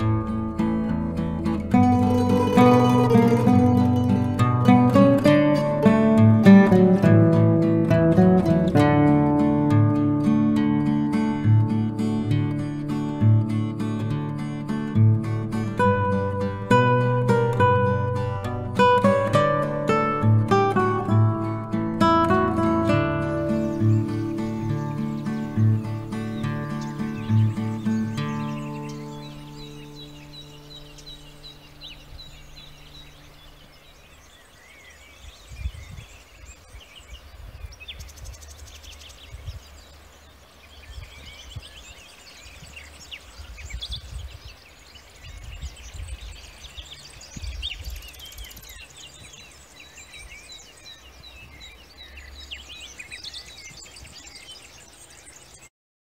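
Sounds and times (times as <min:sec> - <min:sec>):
songbirds chirping and trilling: 0:00.0 - 0:55.7
wind rumble on microphone: 0:35.0 - 0:54.4.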